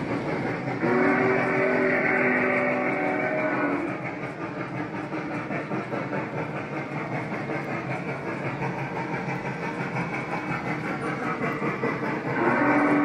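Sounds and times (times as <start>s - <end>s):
model steam locomotive running: 0.0s - 13.0s
wheels rolling on track: 0.0s - 13.0s.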